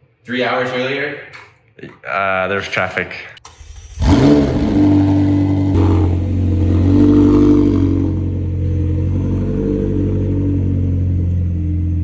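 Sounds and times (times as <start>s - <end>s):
car engine starting and idling: 3.4s - 12.0s.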